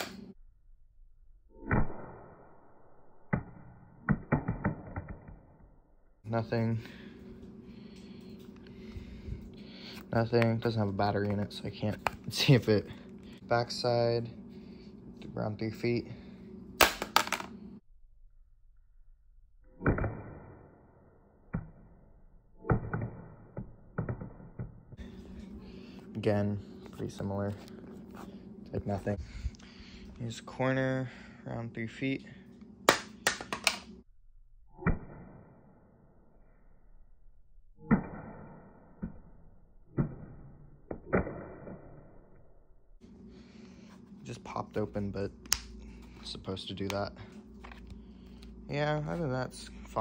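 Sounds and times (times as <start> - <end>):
phone hitting concrete floor: 16.8 - 17.6.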